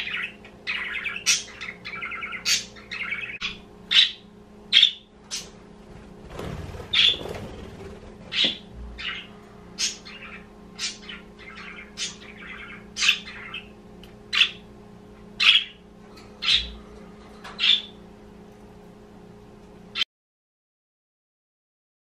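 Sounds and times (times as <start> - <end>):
budgerigars chirping: 0.0 - 5.6, 6.8 - 14.6, 15.4 - 15.8, 16.4 - 16.8, 17.6 - 18.0.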